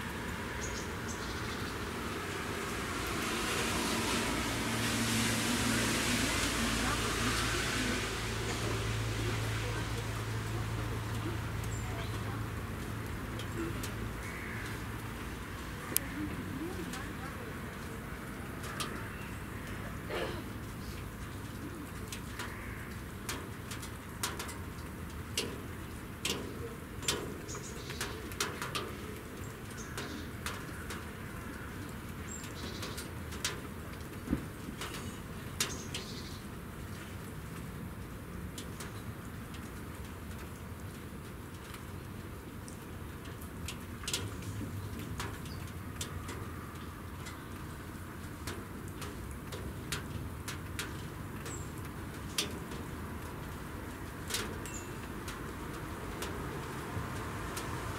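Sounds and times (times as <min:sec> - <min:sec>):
light ticks and clicks: 0:20.6 - 0:36.2, 0:36.9 - 0:57.8.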